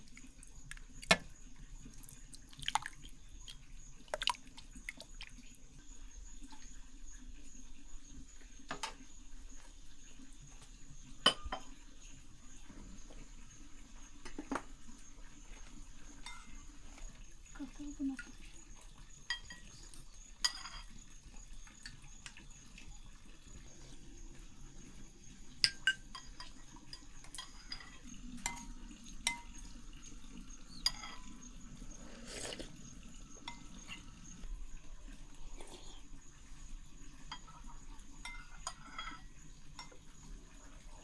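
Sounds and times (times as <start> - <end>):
dishes and cutlery clinking: 11.2 - 11.8, 16.1 - 17.0, 19.2 - 22.0, 25.6 - 29.8, 30.5 - 31.6, 33.3 - 34.3, 37.2 - 40.2.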